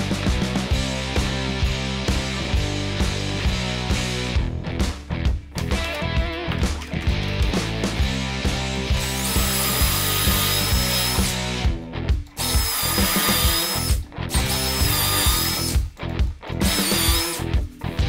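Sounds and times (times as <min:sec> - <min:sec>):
rock music: 0:00.0 - 0:18.0
cordless drill whining: 0:09.0 - 0:11.4, 0:12.4 - 0:15.8, 0:16.6 - 0:17.5.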